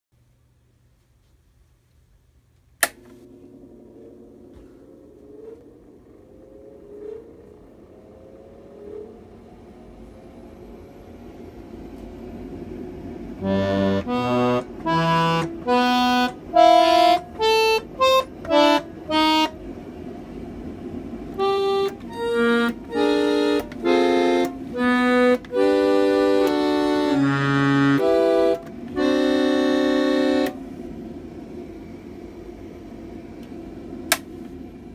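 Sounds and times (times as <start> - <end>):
electric chord organ playing: 13.4 - 19.7, 21.3 - 30.6.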